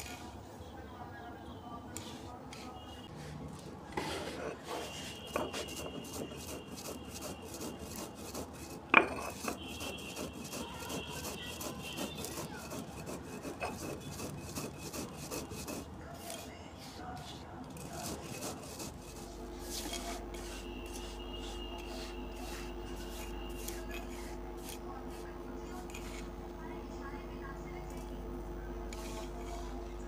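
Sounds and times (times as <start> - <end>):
stone roller grinding on stone: 3.9 - 16.5, 17.7 - 26.3.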